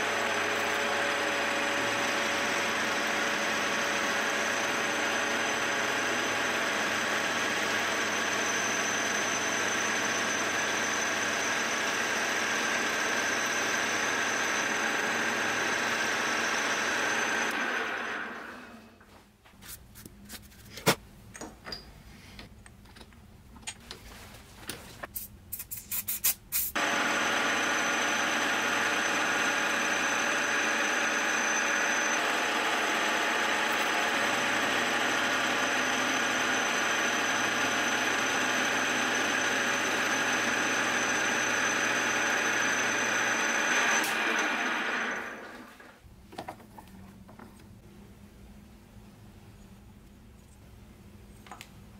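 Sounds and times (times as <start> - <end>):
milling machine cutting: 0.0 - 18.4, 26.8 - 45.8.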